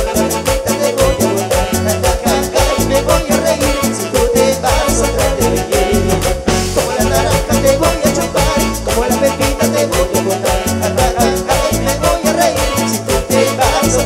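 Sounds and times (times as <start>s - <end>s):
band playing upbeat dance music: 0.0s - 14.0s.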